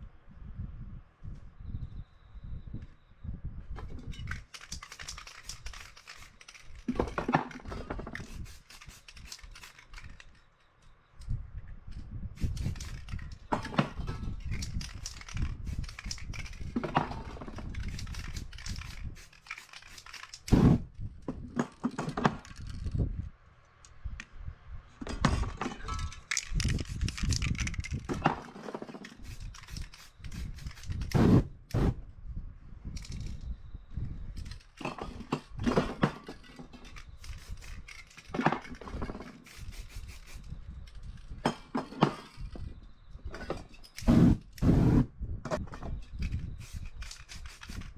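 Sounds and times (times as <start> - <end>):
spray paint hissing: 4.4 - 6.8, 8.1 - 10.1, 12.4 - 13.3, 14.5 - 16.8, 17.6 - 20.9, 29.0 - 31.9, 36.9 - 38.3, 39.4 - 40.7, 44.0 - 45.1, 46.3 - 47.9.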